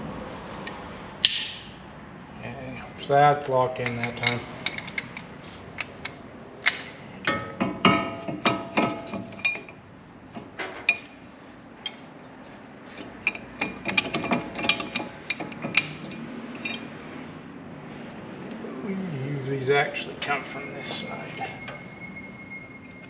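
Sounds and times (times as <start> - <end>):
metal tools clinking and tapping: 3.7 - 17.0.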